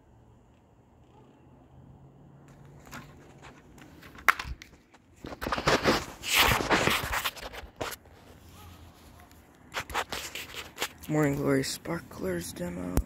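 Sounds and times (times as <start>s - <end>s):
handling rustling and scraping: 2.4s - 11.6s.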